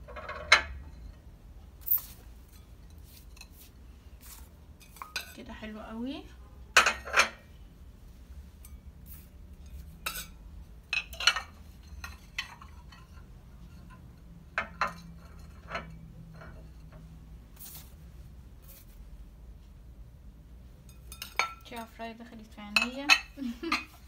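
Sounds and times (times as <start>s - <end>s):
porcelain plates clinking on glass: 22.7s - 24.0s.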